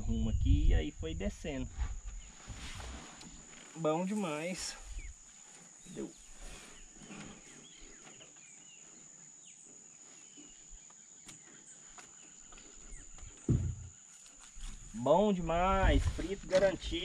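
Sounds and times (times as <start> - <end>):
low thump: 13.4 - 14.0.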